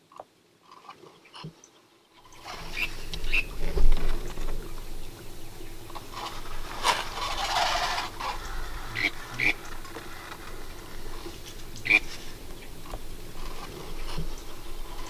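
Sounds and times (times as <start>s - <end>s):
duck quacking: 6.0s - 12.2s.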